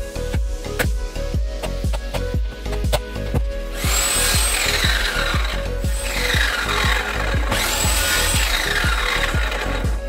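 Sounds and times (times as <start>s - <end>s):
background music with steady beat: 0.0s - 10.0s
mitre saw cutting wood: 3.7s - 10.0s.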